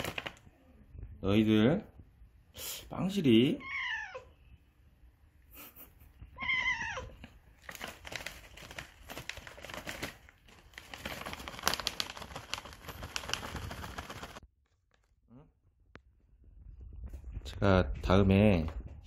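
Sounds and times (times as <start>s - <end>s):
treat pouch crinkling: 0.0s - 0.4s, 7.6s - 14.4s
cat meowing: 3.6s - 4.4s, 6.3s - 7.2s.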